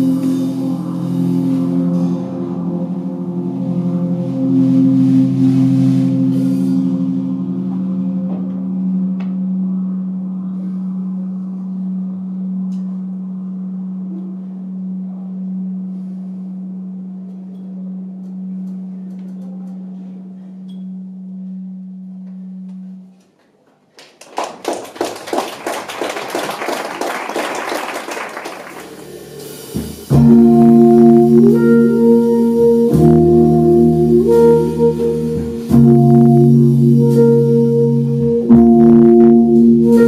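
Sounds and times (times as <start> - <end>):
synthesizer chords: 0.0 - 19.0, 28.8 - 40.0
low electronic drone: 0.0 - 23.3, 28.6 - 40.0
saxophone: 0.0 - 23.3, 27.7 - 40.0.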